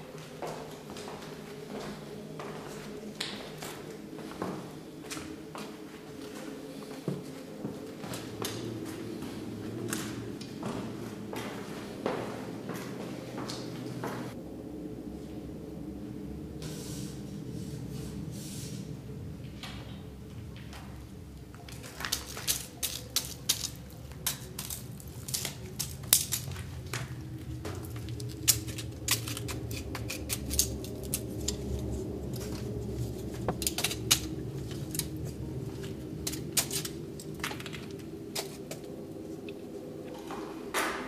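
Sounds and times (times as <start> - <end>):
low steady hum: 0.0 - 41.0
footsteps crunching over rubble: 0.1 - 14.4, 21.5 - 40.5.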